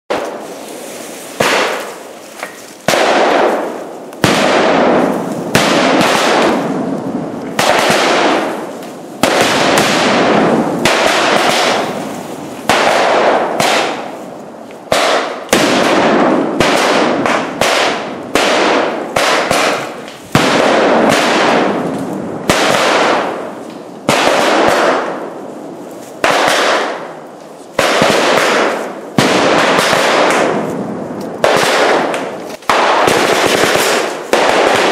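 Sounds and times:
fireworks banging: 0.1 - 34.9
firework hiss: 0.2 - 2.9.

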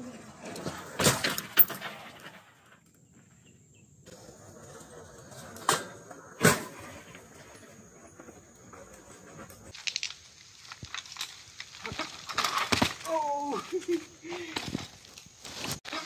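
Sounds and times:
bike tyres crunching on gravel: 4.1 - 16.0
clatter of stones: 4.7 - 16.0.

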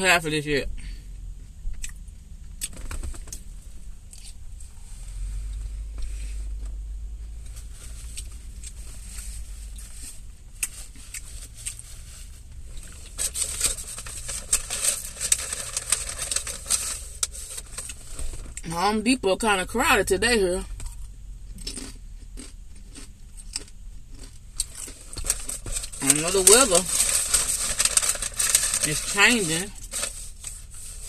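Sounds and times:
low steady rumble: 0.0 - 31.0
crackly rustling: 1.5 - 18.7, 22.7 - 31.0
person chewing salad: 1.7 - 3.4, 9.8 - 11.9, 20.8 - 26.0.

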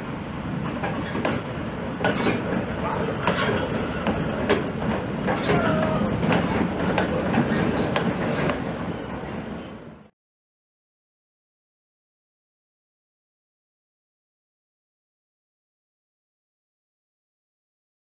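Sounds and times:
train rumbling: 0.0 - 10.1
wheels clicking over rail joints: 0.5 - 9.0.

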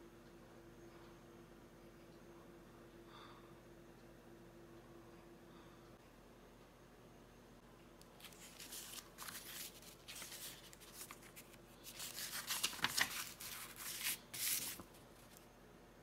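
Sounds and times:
paper rustling: 8.2 - 15.5.

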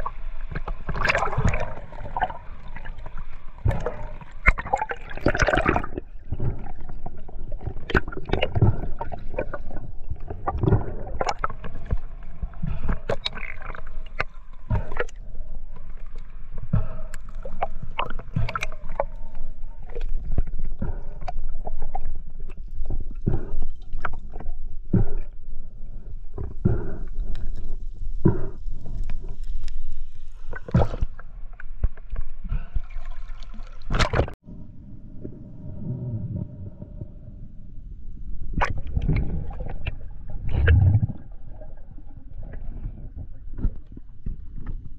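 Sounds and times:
water sloshing and gurgling: 0.0 - 44.9
low rumble: 34.3 - 44.3.

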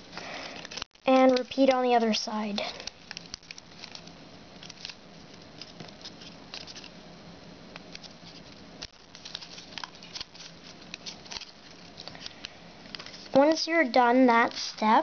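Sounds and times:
foil paper crinkling: 2.6 - 7.0, 7.9 - 13.4.

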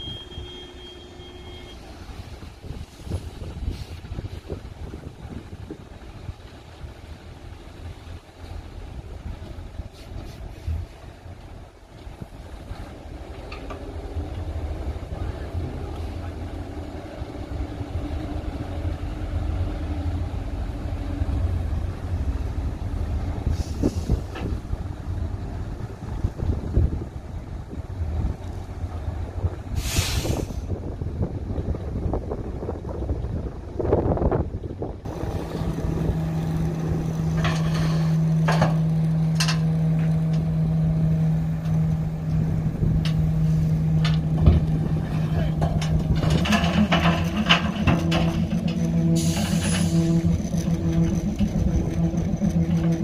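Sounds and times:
diesel engine rumbling: 0.0 - 53.0
brief hiss: 9.9 - 10.9, 23.5 - 24.5, 29.8 - 30.7
earth unloading from tipper: 35.1 - 40.0, 43.4 - 53.0
short falling tone: 42.7 - 53.0.

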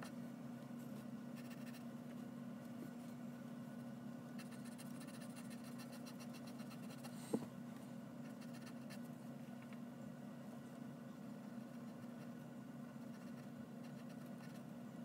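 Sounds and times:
steady low hum: 0.0 - 15.0
pencil scratching on paper: 1.4 - 1.8, 4.4 - 7.1, 8.2 - 9.0, 13.0 - 14.6.

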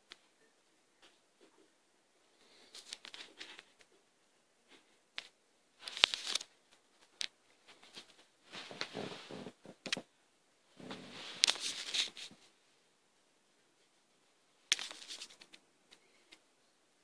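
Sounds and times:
microphone handling rustle: 7.7 - 10.0.

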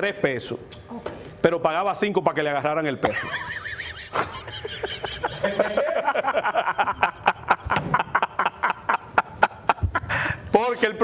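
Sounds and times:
man laughing out loud: 3.0 - 10.4.

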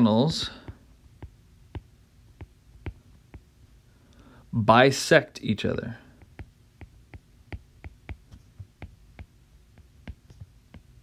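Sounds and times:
stylus tapping on glass screen: 0.6 - 3.5, 6.2 - 11.0.

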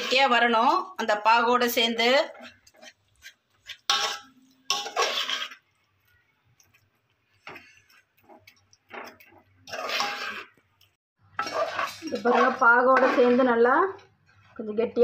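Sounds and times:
ladle scraping metal pot: 0.0 - 0.8, 2.0 - 5.8, 7.2 - 10.6, 11.2 - 14.6.

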